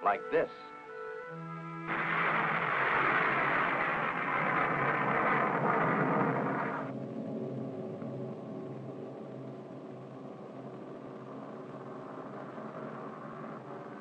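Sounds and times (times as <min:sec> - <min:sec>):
rocket firing roar: 0:01.9 - 0:07.0
low rumble: 0:01.9 - 0:14.0.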